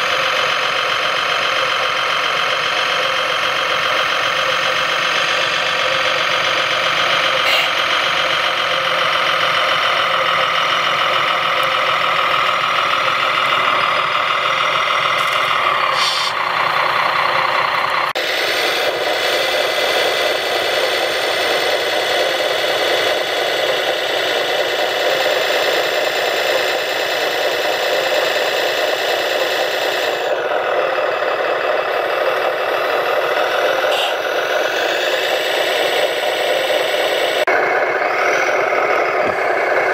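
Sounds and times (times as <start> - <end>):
mechanical drone with whine: 18.1 - 39.9.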